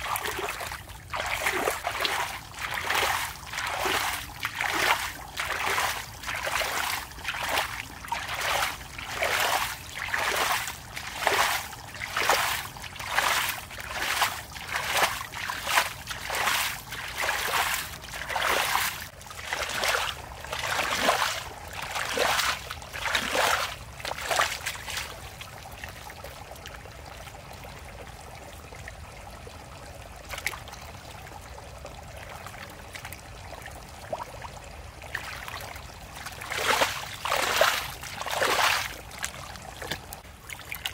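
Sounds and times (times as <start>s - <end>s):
hands splashing in muddy water: 0.0s - 25.5s, 35.1s - 40.9s.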